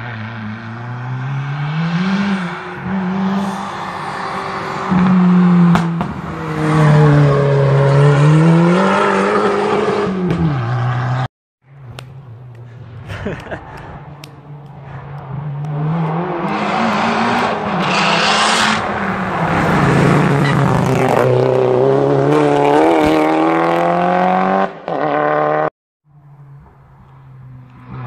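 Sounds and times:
rally car engine revving: 0.0 - 11.3, 15.2 - 25.7.

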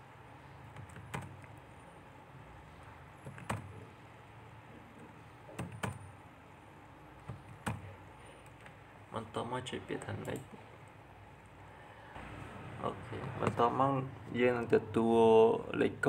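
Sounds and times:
low steady hum: 0.0 - 16.0
keyboard keys clicking: 0.7 - 1.6, 3.2 - 3.8, 5.5 - 6.1, 7.2 - 8.8.

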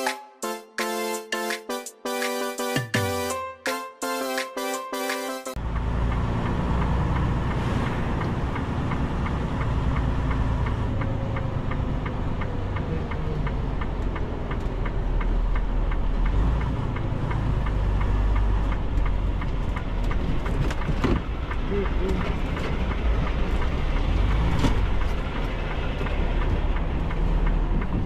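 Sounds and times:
diesel truck engine running: 5.6 - 28.0
turn signal ticking: 5.6 - 28.0.

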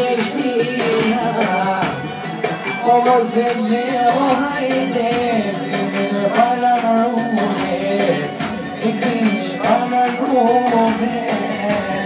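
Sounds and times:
folk-pop song with steady beat: 0.0 - 12.0
man singing: 0.0 - 12.0.

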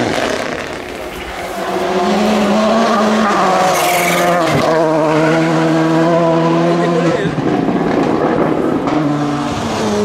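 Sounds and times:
car engine at high revs: 0.0 - 10.0.

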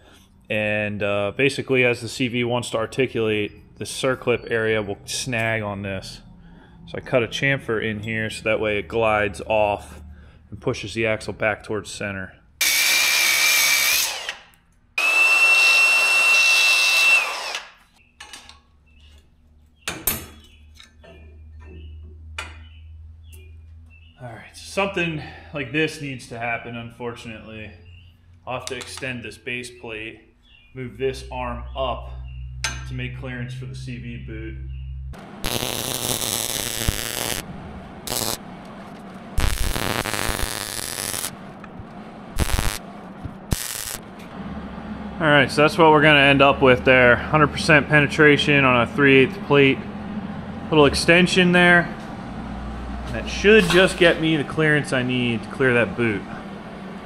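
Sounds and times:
low hum: 0.6 - 10.6, 31.0 - 57.0
power tool whining: 12.6 - 17.9, 35.2 - 41.4, 42.4 - 42.8, 43.5 - 44.0
crackling welding arc: 35.2 - 37.4, 38.0 - 38.4, 39.0 - 41.4, 42.3 - 42.8, 43.4 - 44.1.

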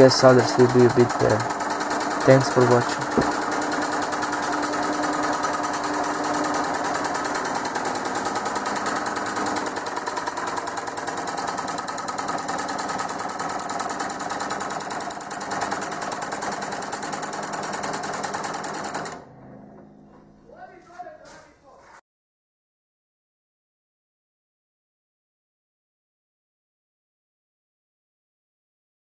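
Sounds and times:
fast steady mechanical rattle: 0.0 - 19.2
scroll saw running: 0.0 - 19.2.

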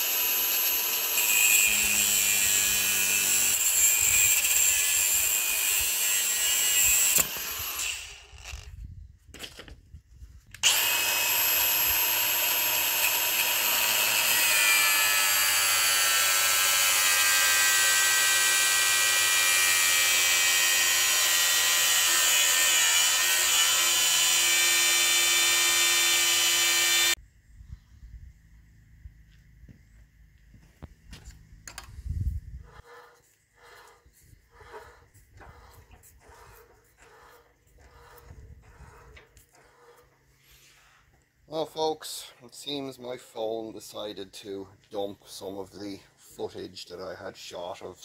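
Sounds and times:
angle grinder cutting steel: 0.0 - 8.7, 10.6 - 27.2.

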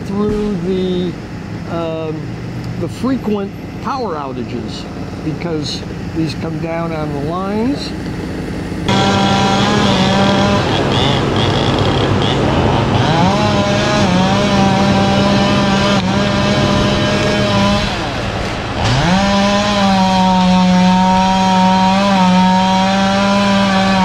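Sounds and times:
chainsaw revving while cutting: 8.8 - 24.0.

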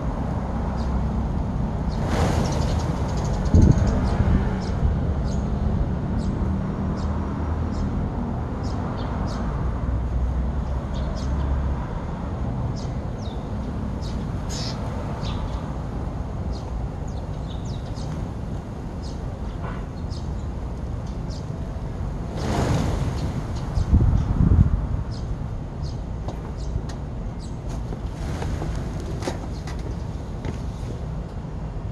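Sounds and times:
sparrows chirping: 0.7 - 1.0, 1.8 - 9.6, 10.6 - 11.6, 12.6 - 27.7, 29.4 - 30.3.

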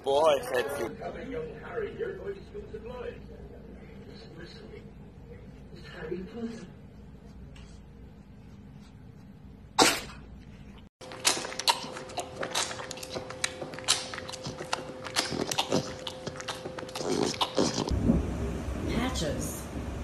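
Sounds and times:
cub sucking on a bottle: 11.6 - 17.9.

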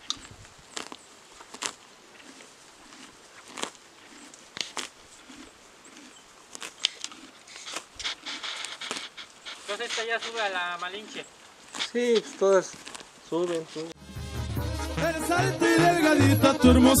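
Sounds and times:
horse chewing: 0.0 - 13.1
horse tearing grass: 0.7 - 13.9.

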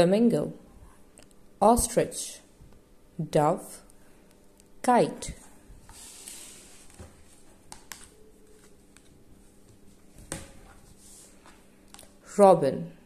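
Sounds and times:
book page rustling: 5.8 - 12.2.

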